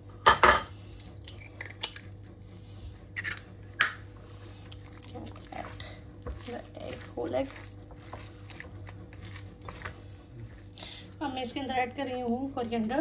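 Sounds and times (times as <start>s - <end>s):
egg shell cracking: 1.0s - 2.2s, 3.2s - 4.0s.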